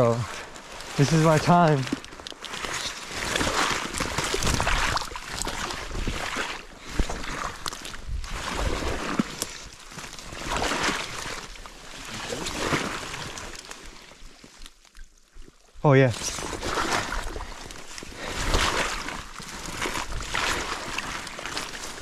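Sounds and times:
water sloshing: 0.0 - 22.0
dry reeds rustling: 16.1 - 22.0.

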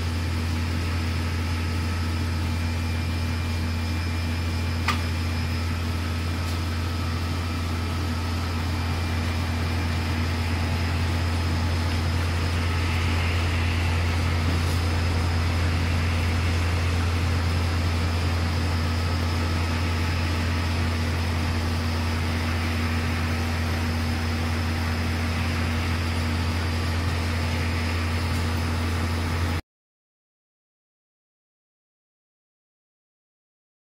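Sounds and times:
printing machine hum: 0.0 - 29.6.

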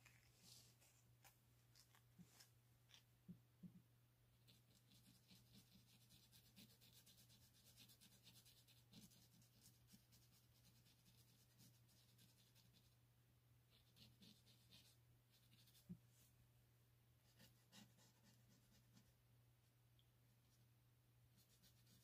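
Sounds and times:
pencil scratching on paper: 4.4 - 12.9, 13.7 - 16.0, 17.3 - 19.1, 21.4 - 22.0.

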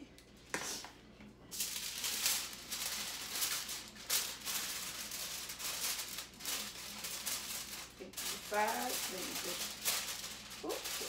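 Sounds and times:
aluminium foil crinkling: 1.5 - 11.0.

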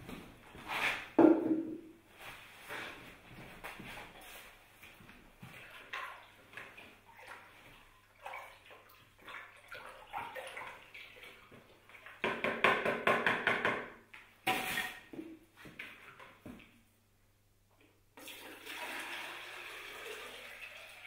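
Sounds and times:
water sloshing in a plastic bucket: 5.4 - 12.2.

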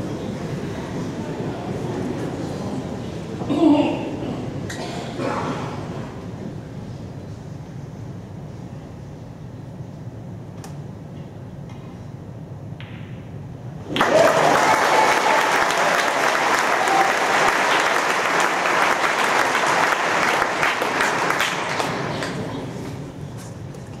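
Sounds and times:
audience applauding: 13.9 - 22.5.

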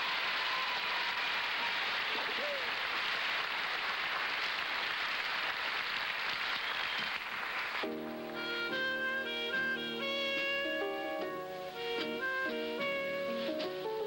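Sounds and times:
audience applauding: 0.0 - 8.8
clarinet: 7.8 - 14.0
piano: 7.8 - 14.0.

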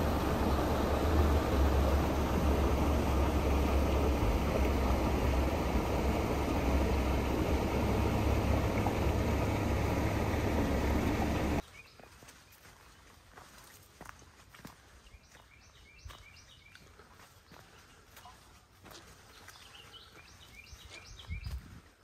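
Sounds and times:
creek water rushing over concrete: 0.0 - 11.6
deep rumble: 0.0 - 11.6
faint steps on dirt trail: 11.6 - 22.0.

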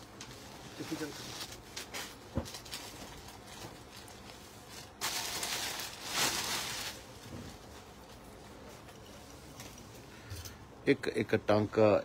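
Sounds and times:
cloth rustling and swishing: 0.2 - 9.9.

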